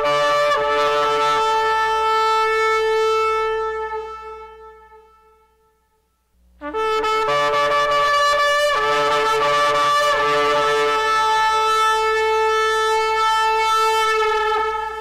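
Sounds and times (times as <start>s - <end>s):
shofar long blast: 6.6s - 15.0s.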